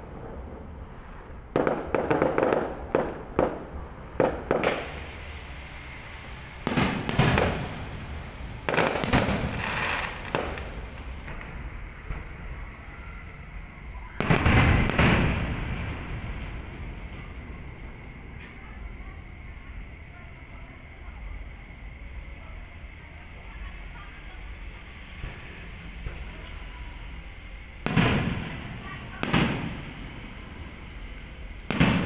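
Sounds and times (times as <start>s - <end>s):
firework shells bursting: 1.5s - 12.2s, 31.5s - 32.0s.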